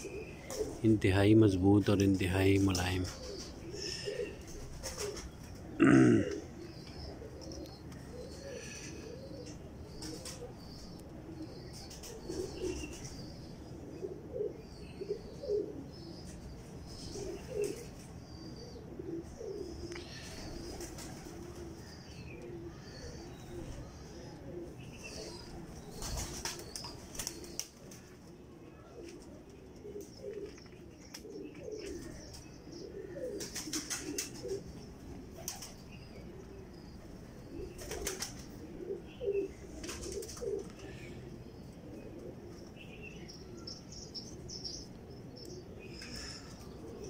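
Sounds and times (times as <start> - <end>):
pigeons cooing: 0.0 - 47.0
wings fluttering: 2.6 - 5.6, 20.6 - 21.8, 25.9 - 28.2, 33.3 - 34.7, 35.3 - 35.8, 37.8 - 38.6, 39.8 - 40.7.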